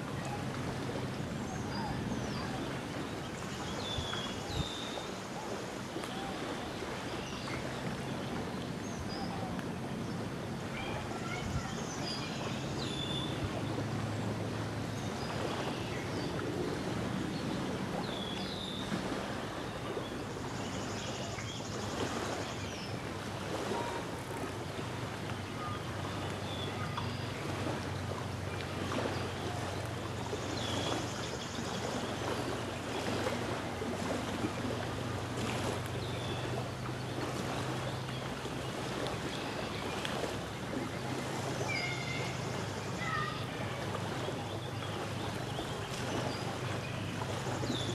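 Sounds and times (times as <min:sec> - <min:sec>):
light wind: 0:00.0 - 0:47.9
small waves lapping on shore: 0:00.0 - 0:47.9.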